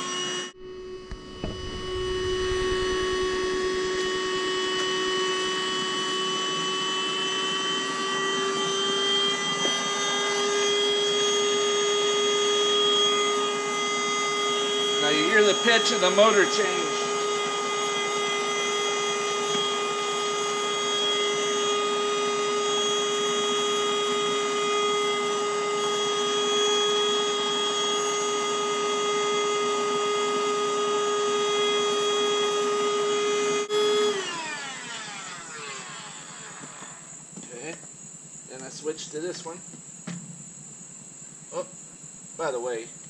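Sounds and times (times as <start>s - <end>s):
inflator motor whine: 0.0s - 37.4s.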